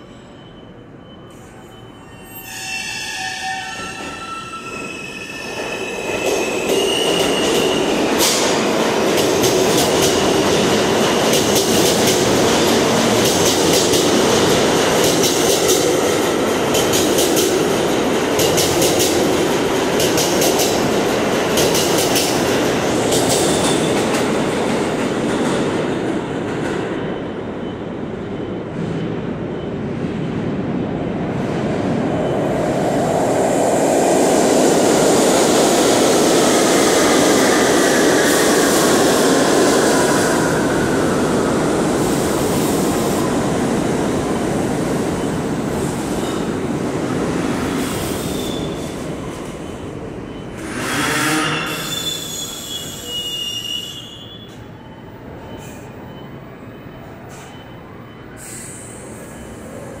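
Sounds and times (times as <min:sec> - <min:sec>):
subway train rumble: 0:00.0 - 1:00.0
metal wheel squeal: 0:50.6 - 0:54.6.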